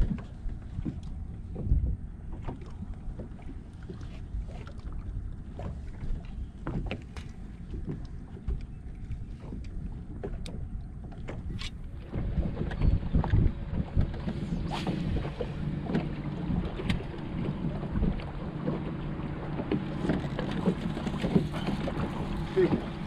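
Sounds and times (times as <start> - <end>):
wind noise on microphone: 0.0 - 2.2, 9.2 - 18.9
waves slapping boat hull: 0.0 - 23.0.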